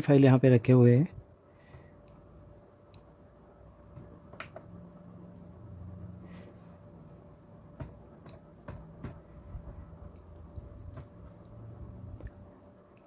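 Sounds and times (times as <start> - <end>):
faint steady hum: 0.0 - 13.0
laptop keyboard and mouse clicks: 3.9 - 4.8, 7.7 - 12.5.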